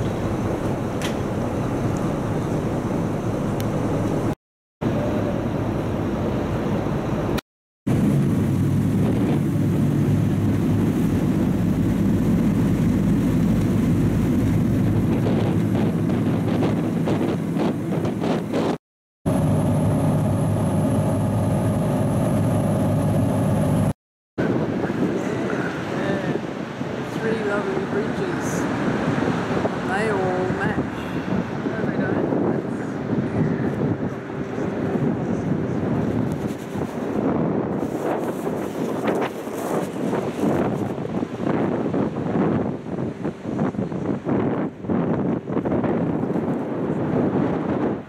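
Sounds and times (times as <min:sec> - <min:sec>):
boat engines droning: 0:00.0 - 0:17.6, 0:19.3 - 0:23.9, 0:24.5 - 0:36.2
water noise: 0:00.0 - 0:48.0
wind: 0:00.0 - 0:48.0.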